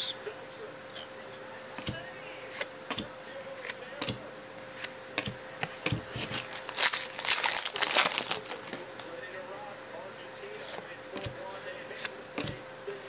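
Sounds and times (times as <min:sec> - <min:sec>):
foil wrapper crinkled and torn: 0:06.2 - 0:09.1
trading cards shuffled: 0:06.2 - 0:09.1.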